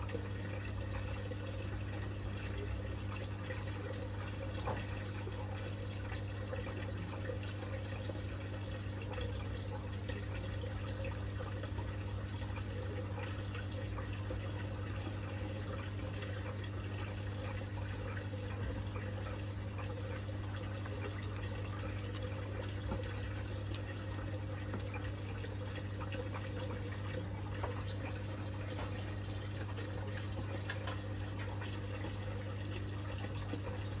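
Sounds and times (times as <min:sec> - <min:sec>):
aquarium water bubbling: 0:00.0 - 0:34.0
pump humming: 0:00.0 - 0:34.0.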